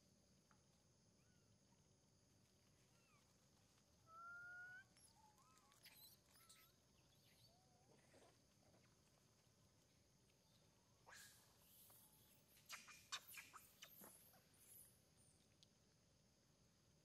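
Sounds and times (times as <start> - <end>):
monkey chirps and squeaks: 4.2 - 7.6, 10.5 - 14.9.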